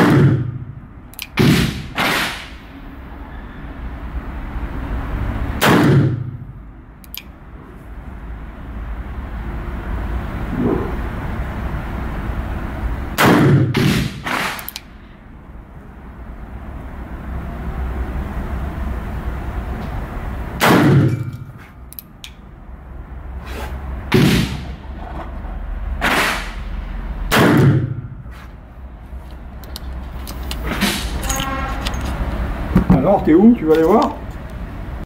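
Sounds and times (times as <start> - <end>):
revolver shots indoors: 0.0 - 2.7, 5.6 - 6.4, 13.1 - 14.9, 20.6 - 21.5, 26.0 - 28.2.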